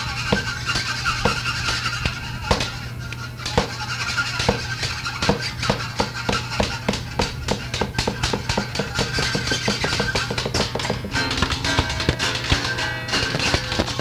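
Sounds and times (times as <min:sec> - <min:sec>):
fast drum hits: 0:04.4 - 0:14.0
steady low drone: 0:10.3 - 0:14.0.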